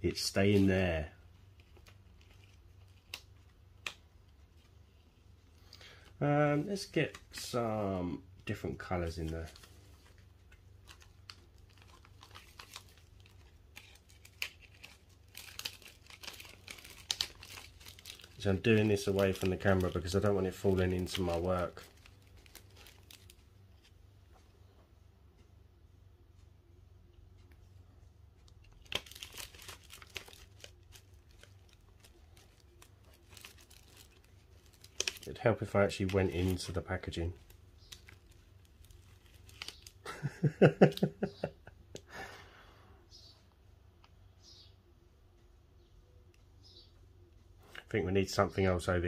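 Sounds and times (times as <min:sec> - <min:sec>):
plastic packet crinkling: 0:00.2 - 0:04.7, 0:08.5 - 0:23.9, 0:28.6 - 0:41.3.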